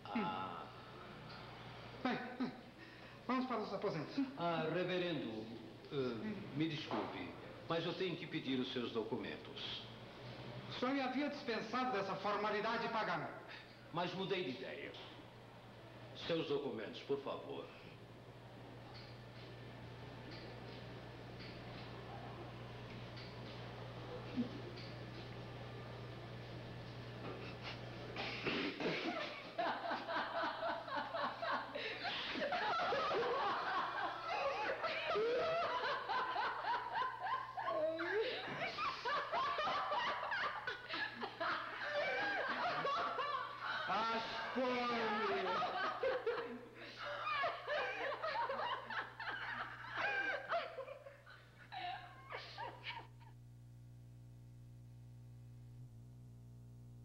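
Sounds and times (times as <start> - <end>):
low steady hum: 0.0 - 57.0
people laughing: 1.9 - 3.1, 24.0 - 25.4, 27.2 - 53.4.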